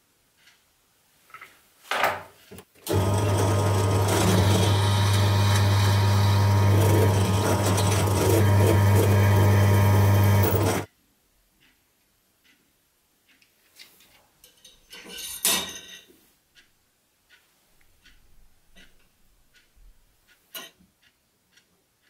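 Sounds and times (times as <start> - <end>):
drill press drilling metal: 2.9 - 10.9.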